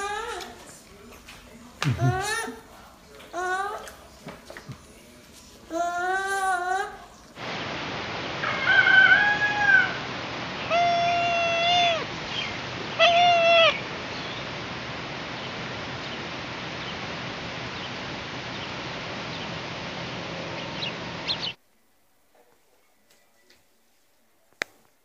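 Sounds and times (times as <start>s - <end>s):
animal calling: 0.0s - 0.8s, 8.4s - 14.5s
background hiss: 0.0s - 25.0s.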